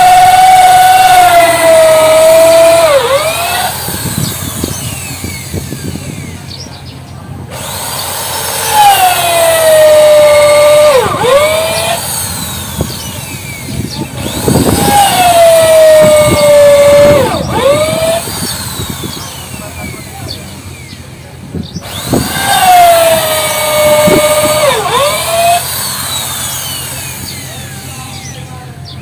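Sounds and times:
electric power tool whining: 0.0 - 29.0.

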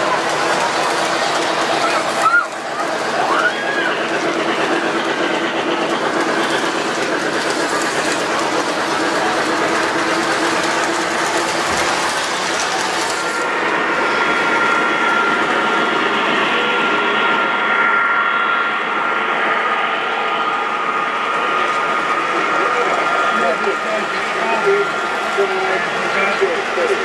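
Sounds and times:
model train wheels rattling on rails: 0.0 - 15.6, 21.4 - 27.0
model locomotive high whine: 0.0 - 27.0.

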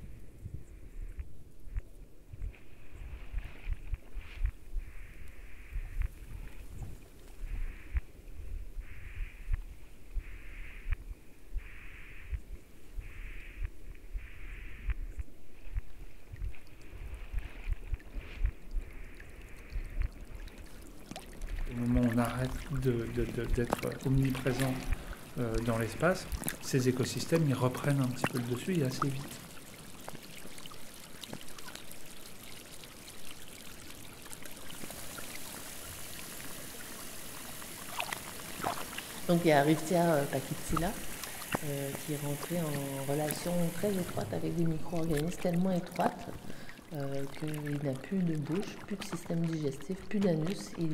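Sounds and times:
rushing water underwater: 13.0 - 50.9.

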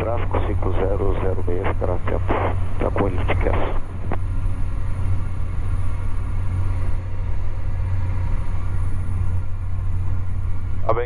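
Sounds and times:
propeller engine drone in cockpit: 0.0 - 11.0.

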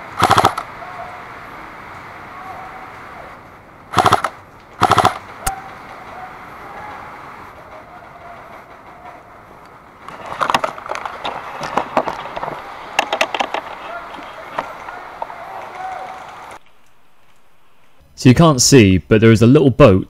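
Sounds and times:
airsoft rifle full-auto bursts: 0.1 - 0.7, 3.9 - 5.3
rustling and clicking of gear: 7.5 - 18.0.

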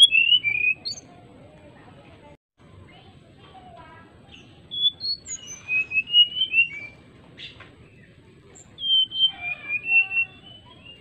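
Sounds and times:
bird whistling song: 0.0 - 1.1, 4.3 - 11.0.

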